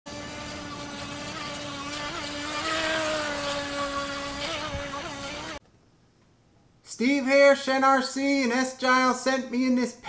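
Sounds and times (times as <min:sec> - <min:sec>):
electric motor whining: 0:00.1 - 0:05.6
water spray hissing: 0:00.1 - 0:05.6.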